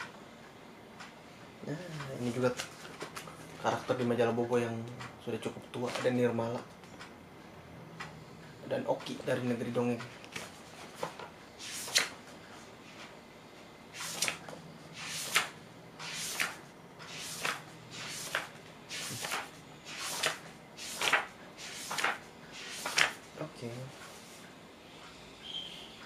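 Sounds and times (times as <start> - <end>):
magazine pages turning: 15.0 - 23.2.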